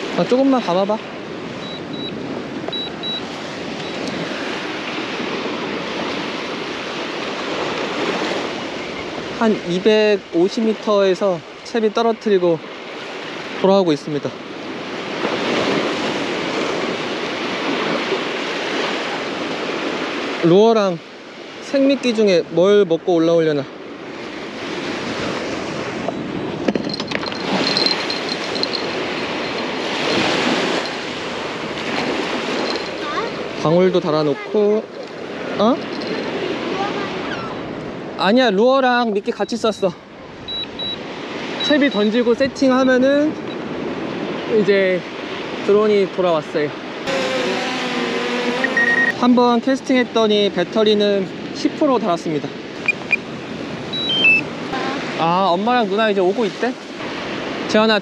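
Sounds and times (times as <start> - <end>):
surf waves washing onto sand: 0.0 - 58.0
wind on microphone: 1.0 - 9.7, 24.0 - 33.7, 47.0 - 49.4
short high beeps: 1.6 - 4.1, 40.5 - 41.0, 41.6 - 42.1, 48.6 - 49.2, 52.8 - 53.3, 53.9 - 54.5.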